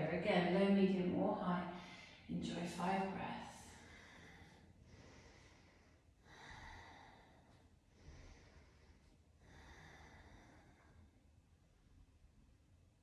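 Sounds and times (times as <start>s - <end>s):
woman breathing softly: 1.7s - 2.3s, 3.6s - 11.4s.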